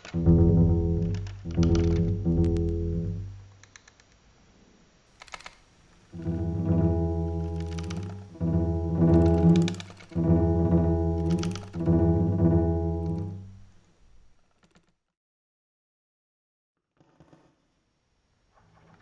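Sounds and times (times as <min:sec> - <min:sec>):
low sustained pitched tones: 0:00.0 - 0:03.5, 0:06.2 - 0:13.7.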